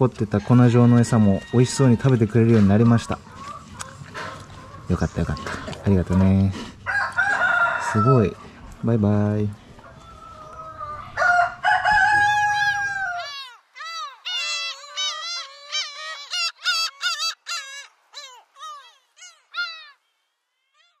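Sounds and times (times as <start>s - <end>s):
farm background: 0.0s - 21.0s
rooster crowing: 0.4s - 2.3s, 6.9s - 8.4s, 9.9s - 16.3s.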